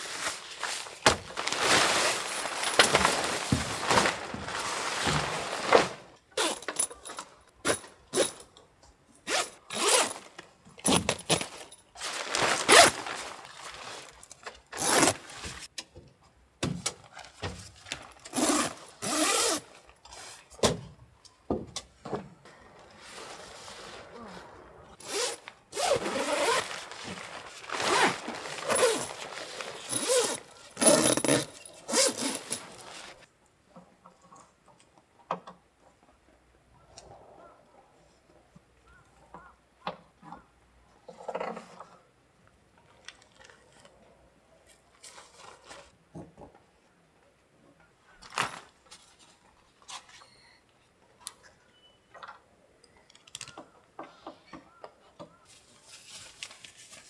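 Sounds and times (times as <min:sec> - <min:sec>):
gear being handled: 0:00.1 - 0:07.1, 0:10.9 - 0:15.7, 0:25.0 - 0:33.3.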